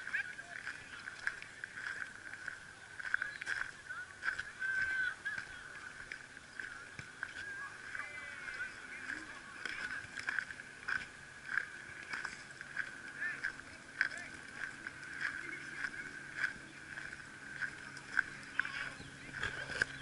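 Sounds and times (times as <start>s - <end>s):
birds chirping and calling: 0.0s - 20.0s.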